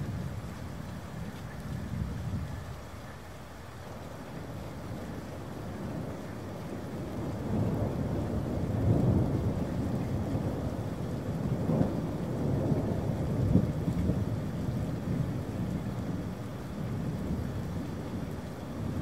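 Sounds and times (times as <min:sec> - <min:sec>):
steady rain: 0:00.0 - 0:19.0
rolling thunder: 0:06.8 - 0:16.3.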